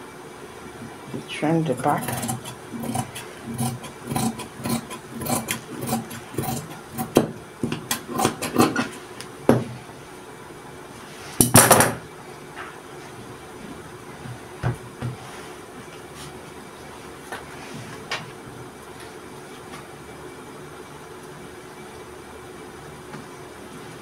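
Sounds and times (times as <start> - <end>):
shears snipping fabric: 1.8 - 9.0.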